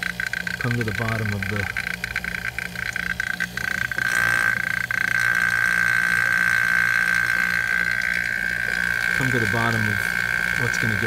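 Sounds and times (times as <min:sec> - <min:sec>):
vacuum pump whistling and humming: 0:00.0 - 0:11.0.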